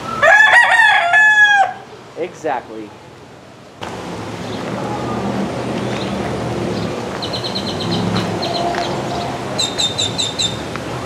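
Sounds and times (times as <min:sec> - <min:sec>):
small bird chirping: 0:06.8 - 0:10.6.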